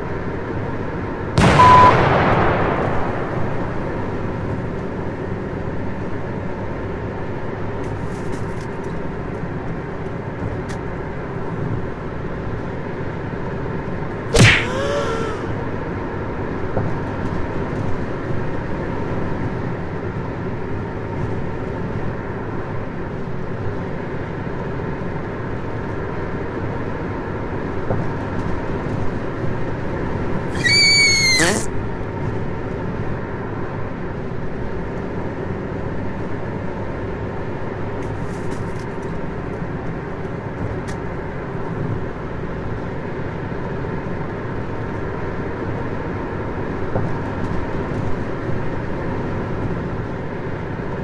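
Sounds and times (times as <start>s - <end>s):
car engine and road noise: 0.0s - 1.9s, 3.4s - 14.3s
short chirping tone: 1.6s - 1.9s, 30.6s - 31.7s
sharp snap: 14.4s - 15.5s.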